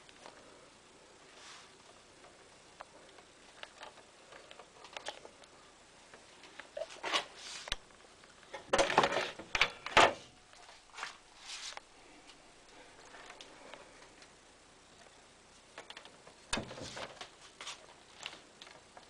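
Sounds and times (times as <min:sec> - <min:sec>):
handling rustles and scrapes: 0:01.3 - 0:05.5, 0:06.2 - 0:07.9, 0:10.5 - 0:13.5, 0:16.7 - 0:18.8.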